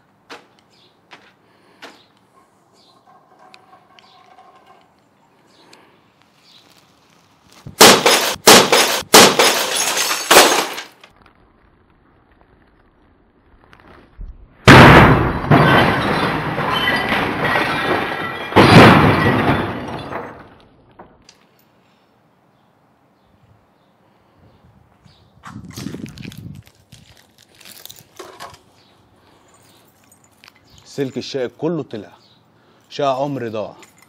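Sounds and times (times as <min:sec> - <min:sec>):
bat smashing plastic printer: 0:07.8 - 0:10.9
glass breaking: 0:07.8 - 0:11.0, 0:14.7 - 0:20.6.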